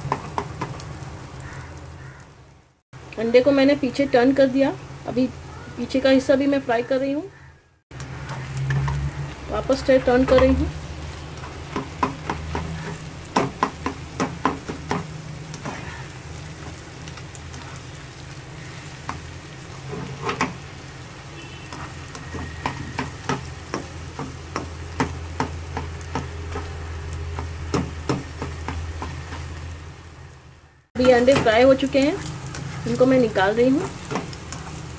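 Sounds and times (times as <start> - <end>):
eggs sizzling in oil: 0.0 - 34.9
spatula tapping and scraping pan: 11.4 - 15.9, 19.9 - 20.6, 21.6 - 29.6, 33.8 - 34.8.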